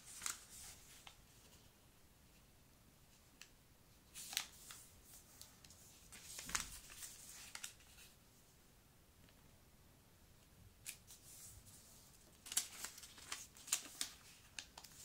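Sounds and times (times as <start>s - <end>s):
paper rustling and crinkling: 0.0s - 1.6s, 4.1s - 8.2s, 10.8s - 15.0s.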